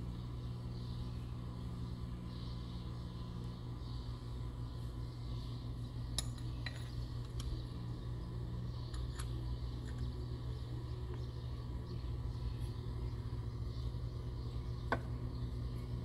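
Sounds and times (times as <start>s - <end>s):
steady low hum: 0.0s - 16.0s
light metallic clinks: 6.1s - 7.6s.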